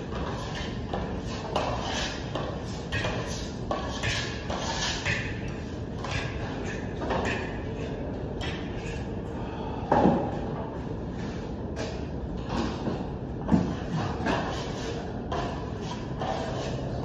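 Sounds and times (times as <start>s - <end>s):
trowels scraping plaster: 0.1s - 9.0s, 13.6s - 17.0s.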